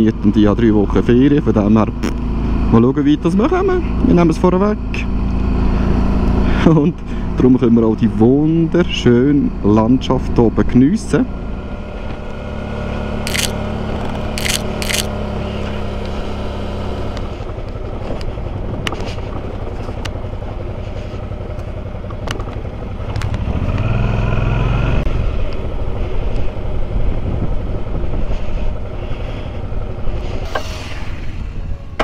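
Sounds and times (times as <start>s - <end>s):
motorcycle engine running: 0.0s - 30.5s
wind and road noise: 0.0s - 32.0s
sharp clicks: 13.3s - 13.6s, 14.4s - 15.1s.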